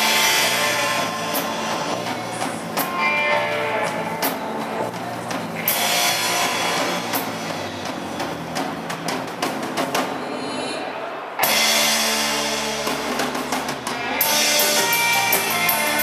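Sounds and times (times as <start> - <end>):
rock band playing: 0.0 - 16.0.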